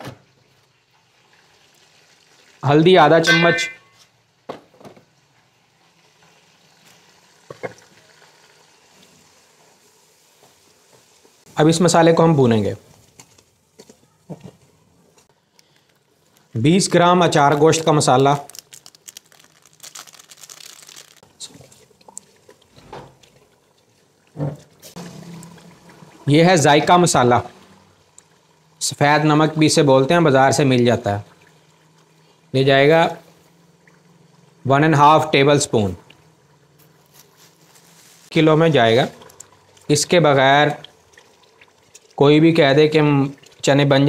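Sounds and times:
spices sizzling in oil: 0:05.5 - 0:13.8.

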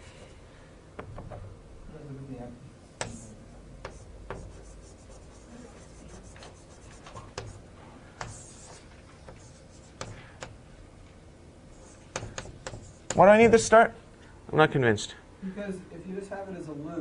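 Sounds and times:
writing tool tapping on board: 0:03.0 - 0:04.7, 0:06.2 - 0:07.6, 0:08.2 - 0:10.6, 0:12.1 - 0:13.6
writing tool scratching on board: 0:03.0 - 0:07.6, 0:08.2 - 0:10.6, 0:11.8 - 0:13.6.

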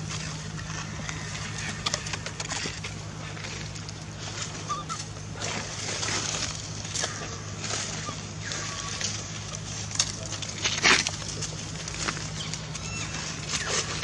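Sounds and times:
infant monkey crying: 0:04.6 - 0:05.1, 0:07.1 - 0:09.1, 0:12.8 - 0:13.8.

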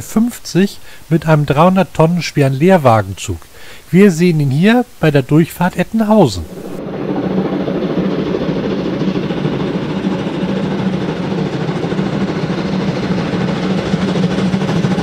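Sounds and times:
steam locomotive rumbling: 0:06.4 - 0:15.0.

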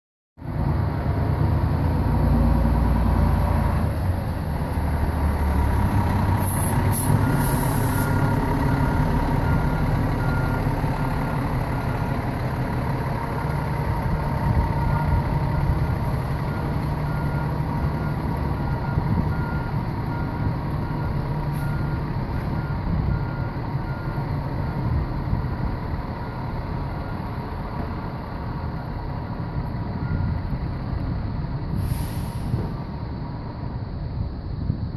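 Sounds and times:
diesel fire engine running: 0:00.4 - 0:34.9
reversing alarm beeping: 0:05.4 - 0:29.1, 0:29.9 - 0:30.5
air brake hisses: 0:06.4 - 0:08.2, 0:31.7 - 0:32.8.

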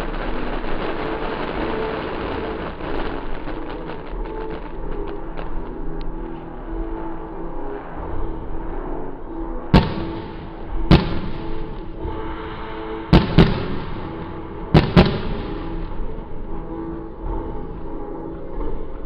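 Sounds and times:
fireworks bangs: 0:00.0 - 0:05.8, 0:09.7 - 0:12.2, 0:13.0 - 0:16.7.

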